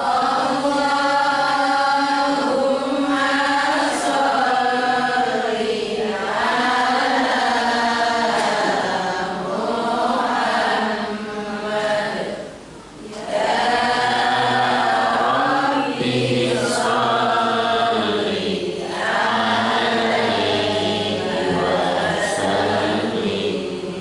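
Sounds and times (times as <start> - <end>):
man chanting into a microphone: 14.0 - 24.0.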